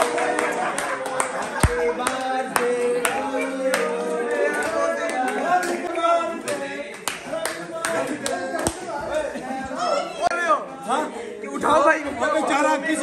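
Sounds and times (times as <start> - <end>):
hand claps: 0.0 - 3.9, 4.5 - 8.8
men singing together: 0.0 - 9.8.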